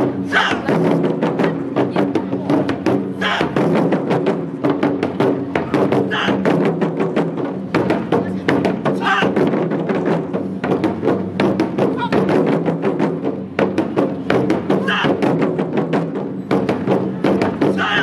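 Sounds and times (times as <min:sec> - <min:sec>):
barrel drums struck with sticks: 0:00.0 - 0:18.0
people shouting: 0:00.2 - 0:00.9, 0:03.1 - 0:03.6, 0:06.0 - 0:06.5, 0:08.9 - 0:09.4, 0:11.9 - 0:12.3, 0:14.7 - 0:15.2, 0:17.6 - 0:18.0.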